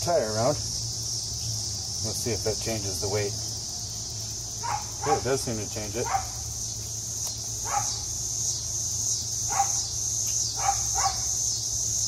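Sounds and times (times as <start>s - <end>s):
insects droning: 0.0s - 12.0s
dog barking: 4.6s - 5.4s, 6.0s - 6.4s, 7.6s - 8.0s, 9.5s - 9.9s, 10.6s - 11.3s.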